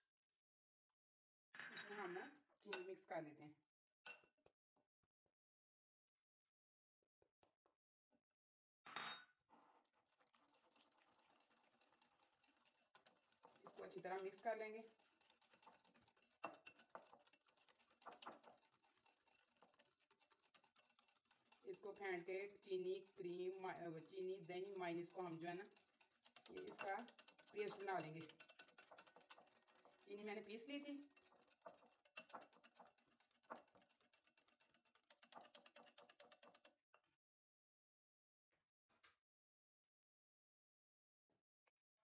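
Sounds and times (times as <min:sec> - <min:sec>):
utensil clicking and scraping bowl: 0:09.8 - 0:36.8.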